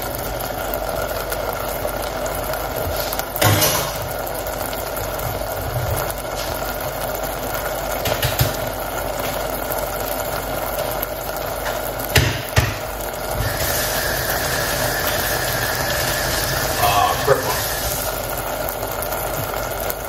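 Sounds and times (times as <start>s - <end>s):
pot of food cooking hiss: 0.0s - 20.0s
faint high tone: 16.8s - 17.7s.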